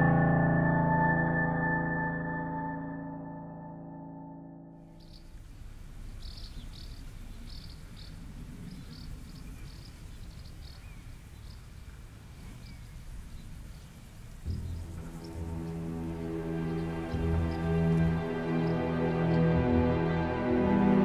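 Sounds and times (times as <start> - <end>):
low rumble: 14.5 - 20.4.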